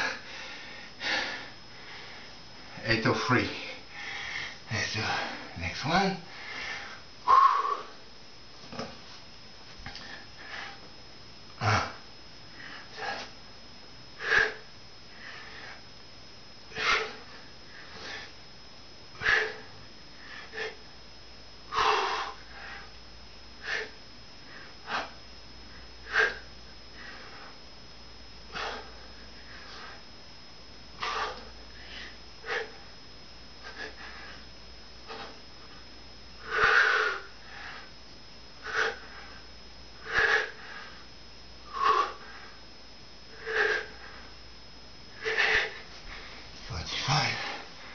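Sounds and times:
man breathing hard: 0:00.0 - 0:02.7, 0:03.4 - 0:05.5, 0:06.3 - 0:08.0, 0:09.9 - 0:10.9, 0:11.6 - 0:13.4, 0:14.2 - 0:15.8, 0:16.8 - 0:18.4, 0:19.2 - 0:20.9, 0:21.7 - 0:23.0, 0:23.6 - 0:27.6, 0:28.5 - 0:30.1, 0:31.0 - 0:32.9, 0:33.6 - 0:35.4, 0:36.4 - 0:38.0, 0:38.6 - 0:39.4, 0:40.0 - 0:42.6, 0:43.3 - 0:44.4, 0:45.1 - 0:47.9.

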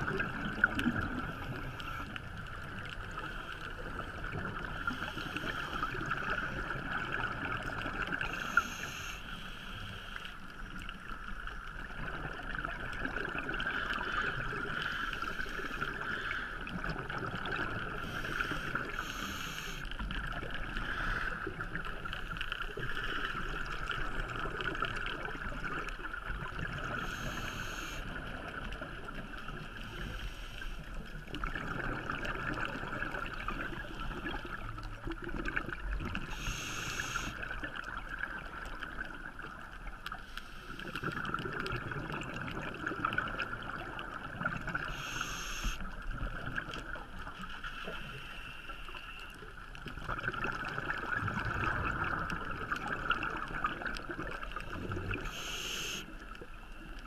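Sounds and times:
bubbles gurgling underwater: 0:00.0 - 0:08.7, 0:10.7 - 0:19.0, 0:20.0 - 0:29.7, 0:30.9 - 0:40.1, 0:40.8 - 0:45.0, 0:49.4 - 0:55.4
regulator hiss on inhale: 0:01.2 - 0:02.2, 0:04.8 - 0:06.7, 0:08.2 - 0:10.5, 0:14.1 - 0:16.6, 0:18.0 - 0:20.0, 0:20.8 - 0:21.5, 0:26.9 - 0:28.2, 0:29.7 - 0:31.1, 0:36.2 - 0:37.5, 0:40.1 - 0:41.2, 0:44.9 - 0:45.9, 0:47.4 - 0:49.3, 0:55.1 - 0:56.3.

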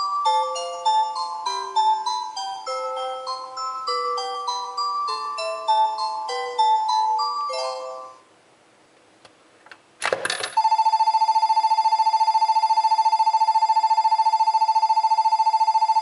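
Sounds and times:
chime melody: 0:00.0 - 0:08.2
electronic departure bell ringing: 0:00.0 - 0:08.2, 0:10.6 - 0:16.0
coin clattering into bank: 0:10.1 - 0:10.6.

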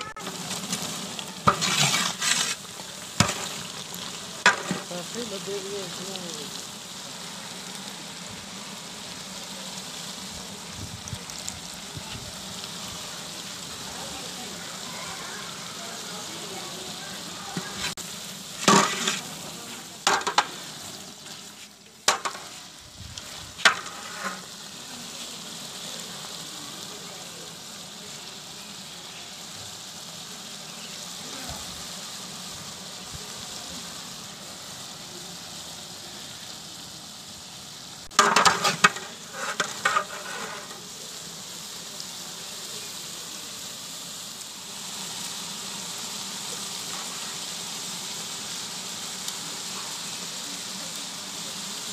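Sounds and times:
meat sizzling in pot: 0:00.0 - 0:51.9
metal ladle scraping pot: 0:01.4 - 0:03.6, 0:18.6 - 0:19.3, 0:38.1 - 0:40.8.

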